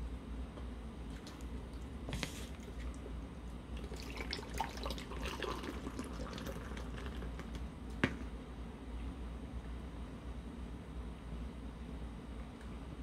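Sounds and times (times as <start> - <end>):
beer pouring and fizzing: 3.8 - 7.6.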